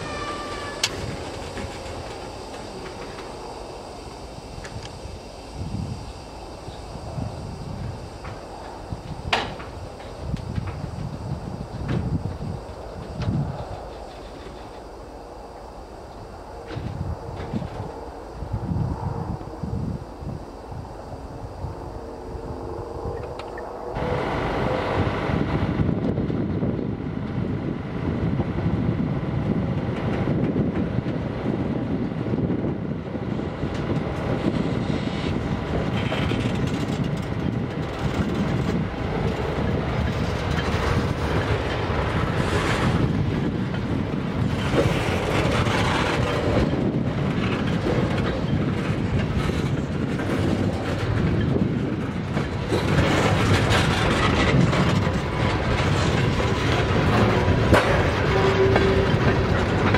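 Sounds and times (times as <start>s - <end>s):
train wheels rumbling on rail: 0.0s - 59.9s
wheels clattering over rail joints: 35.8s - 59.9s.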